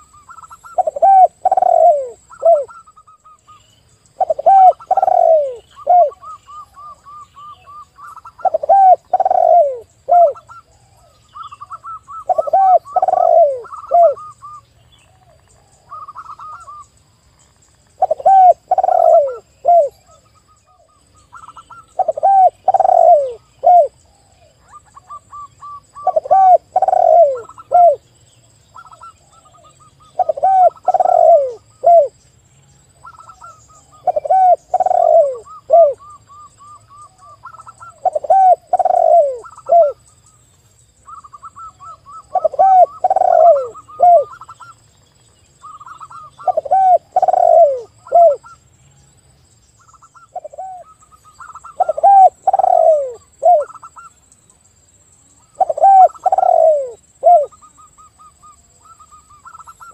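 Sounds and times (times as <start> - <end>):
doves cooing: 0.0 - 3.6, 4.2 - 16.8, 18.0 - 28.1, 28.8 - 32.2, 33.0 - 40.0, 41.1 - 44.7, 45.6 - 48.6, 49.9 - 54.1, 55.4 - 59.9.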